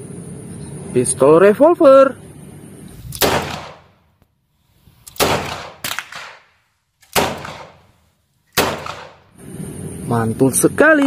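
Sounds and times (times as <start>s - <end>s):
revolver shots with echo: 3.2s - 3.9s.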